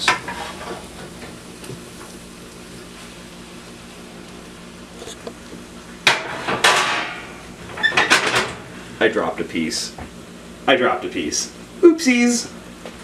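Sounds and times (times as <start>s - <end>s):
metal dish clattering on skillet: 6.0s - 7.2s.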